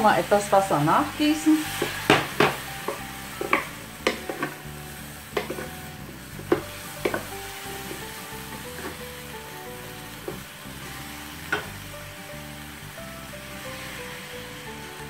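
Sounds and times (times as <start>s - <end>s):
frying pan sizzling: 0.0s - 15.0s
wooden spatula scraping a pan: 0.4s - 11.8s.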